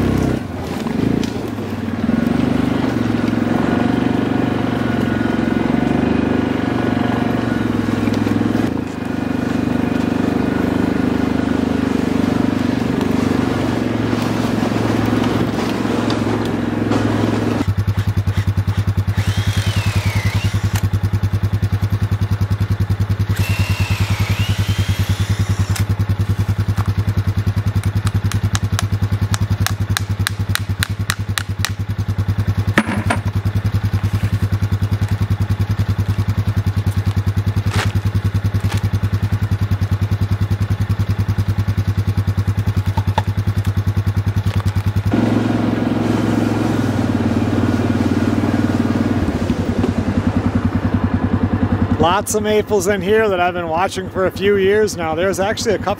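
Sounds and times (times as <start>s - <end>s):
atv engine running: 0.0s - 55.9s
sharp knock: 32.8s - 33.3s.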